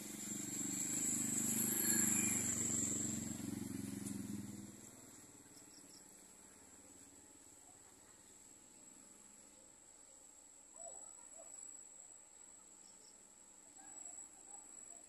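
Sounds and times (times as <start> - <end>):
insect trill: 0.0 - 4.1
low droning engine hum: 0.0 - 8.5.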